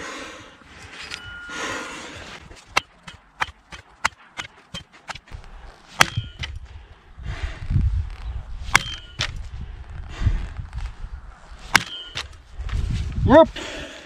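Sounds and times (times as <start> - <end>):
heavy metal strikes with ring: 8.8 - 9.2.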